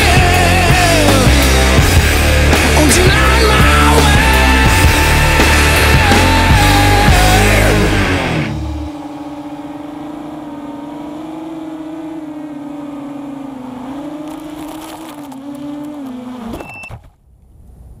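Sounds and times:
quadcopter motors buzzing whine: 0:04.5 - 0:17.0
short high beep: 0:16.6 - 0:17.0.

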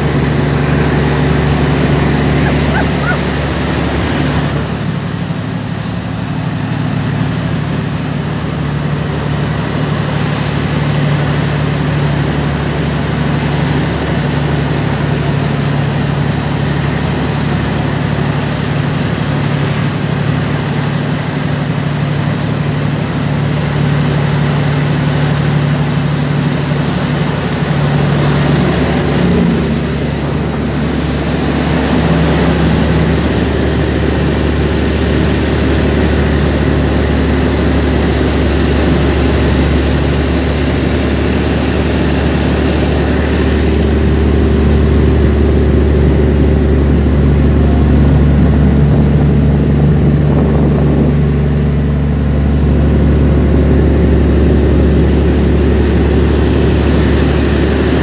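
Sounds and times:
diesel truck engine running: 0:00.0 - 0:58.0.

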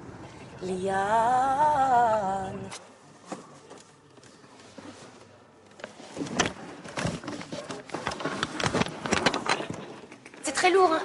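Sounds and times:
objects knocking and clattering: 0:06.2 - 0:10.6.

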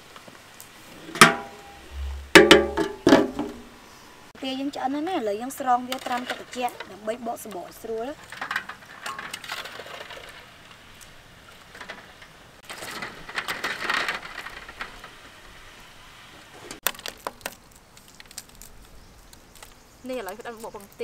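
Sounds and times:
eggshells cracking: 0:16.8 - 0:20.8.

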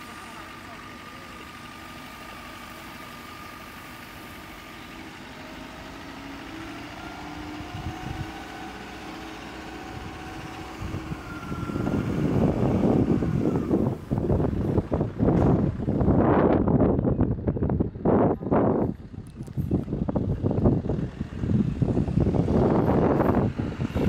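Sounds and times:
truck engine humming: 0:00.0 - 0:24.0
wind buffeting microphone: 0:07.2 - 0:08.8, 0:09.6 - 0:24.0.

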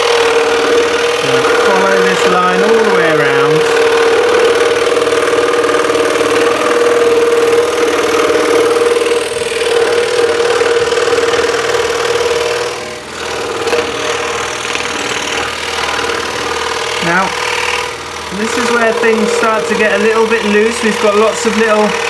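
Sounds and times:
scroll saw cutting wood: 0:00.0 - 0:22.0.

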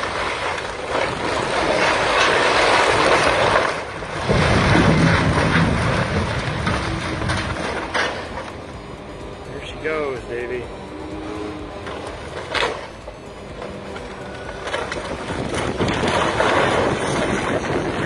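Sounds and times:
crashing debris: 0:00.0 - 0:08.7, 0:13.6 - 0:18.0
heavy low rumble of collapse: 0:00.0 - 0:18.0.

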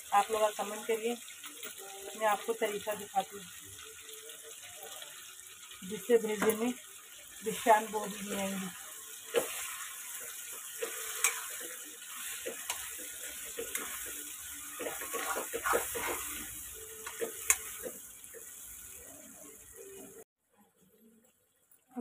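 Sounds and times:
food sizzling in oil: 0:00.0 - 0:20.3
spoon scraping metal pan: 0:09.3 - 0:18.0.

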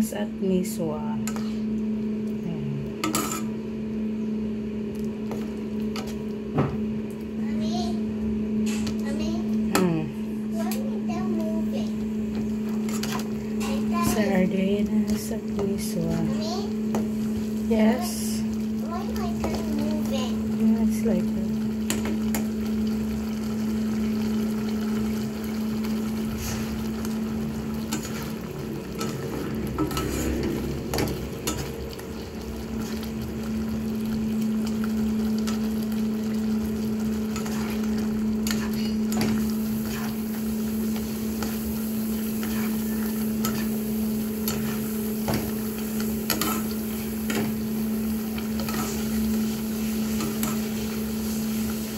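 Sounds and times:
steady low hum: 0:00.0 - 0:51.9
soup bubbling: 0:11.8 - 0:51.9
spatula clicking and scraping a wok: 0:50.1 - 0:50.7.

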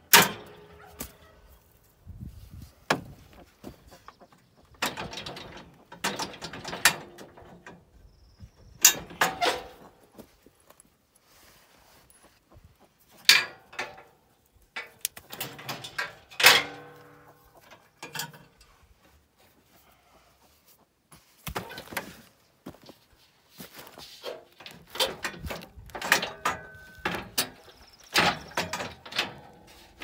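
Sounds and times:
metal clinks and rattles: 0:04.8 - 0:07.8, 0:14.8 - 0:18.7, 0:24.2 - 0:30.0.

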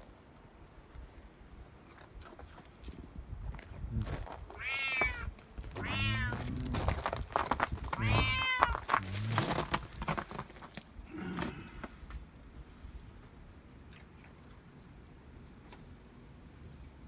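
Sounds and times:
cat meowing: 0:04.6 - 0:06.8, 0:08.0 - 0:08.9.

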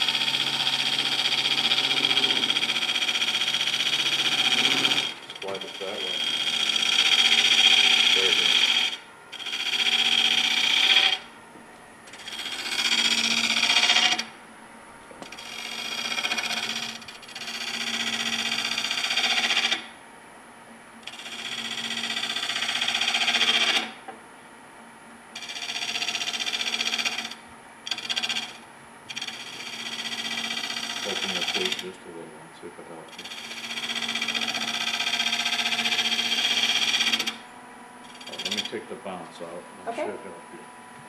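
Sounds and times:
gouge rasping on spinning wood: 0:00.0 - 0:11.3, 0:12.1 - 0:14.3, 0:15.3 - 0:19.8, 0:25.4 - 0:31.9, 0:38.1 - 0:38.9
lathe low hum: 0:00.0 - 0:41.0.

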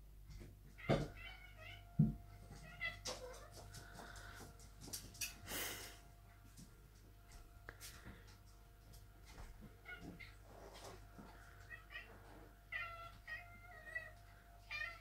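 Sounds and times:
cats meowing: 0:00.8 - 0:04.6, 0:09.8 - 0:10.9, 0:11.5 - 0:15.0.

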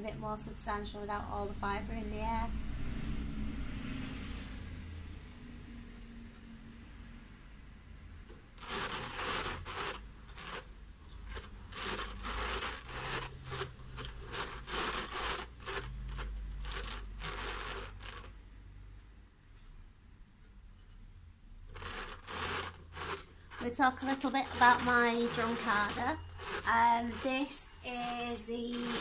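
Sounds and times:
drum carder rasping fibre: 0:08.3 - 0:18.4, 0:21.7 - 0:29.0.

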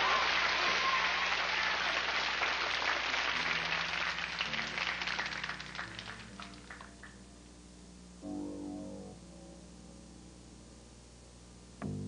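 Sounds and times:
audience applause: 0:00.0 - 0:07.2
low held musical notes: 0:05.6 - 0:10.9.

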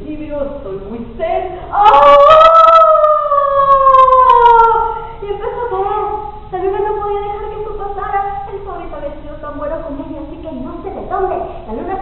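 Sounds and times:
woman imitating fox howl: 0:01.7 - 0:05.0.

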